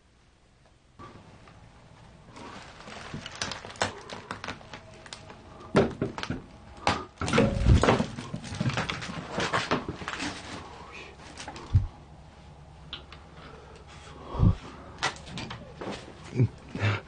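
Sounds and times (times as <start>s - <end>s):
debris rustling and clattering: 1.4s - 11.9s
heavy thuds: 6.9s - 9.2s.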